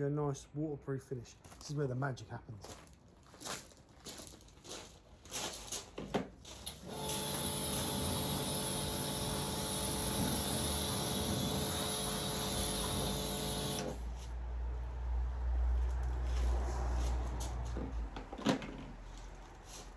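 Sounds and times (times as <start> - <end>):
pressure washer motor humming: 6.8 - 14.1.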